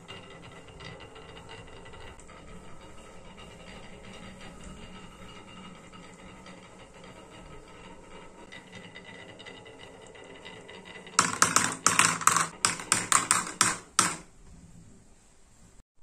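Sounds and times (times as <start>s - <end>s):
marbles rolling on wooden track: 0.0s - 14.3s
marbles clacking on plastic: 9.5s - 14.3s.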